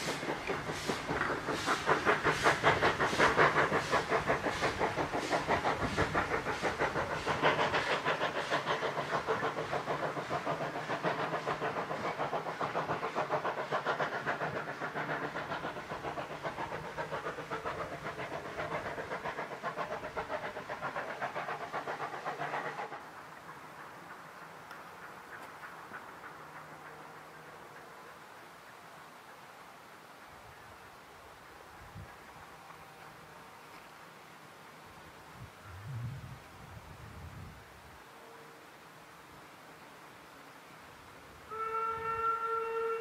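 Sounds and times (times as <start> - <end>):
steam locomotive chuffing: 0.0 - 29.4, 41.4 - 43.0.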